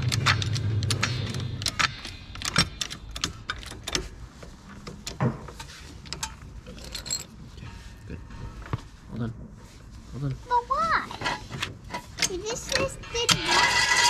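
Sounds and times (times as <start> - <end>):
trolley jack clicking and knocking: 11.2 - 14.0.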